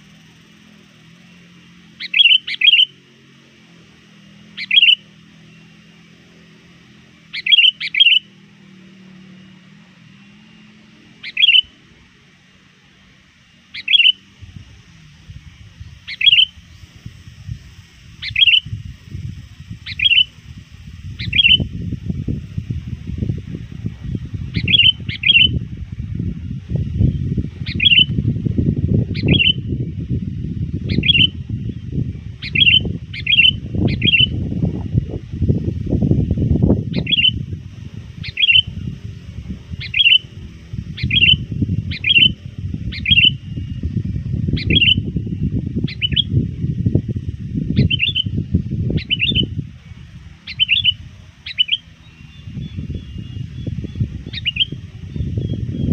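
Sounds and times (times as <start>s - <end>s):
bulbul calls: 0.0s - 29.9s, 30.7s - 55.9s
low rumble: 14.3s - 55.9s.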